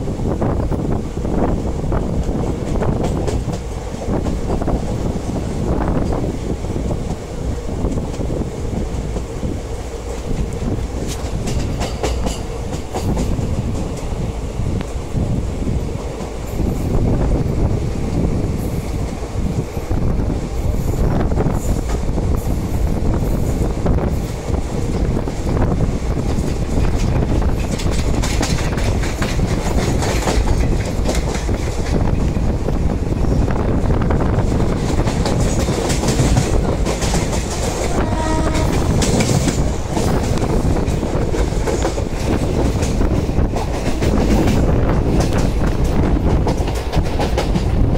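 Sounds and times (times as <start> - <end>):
train rumble: 0.0 - 47.9
wheels clattering over rail joints: 10.2 - 14.1, 26.2 - 32.4, 34.5 - 47.9
train horn: 37.8 - 39.4.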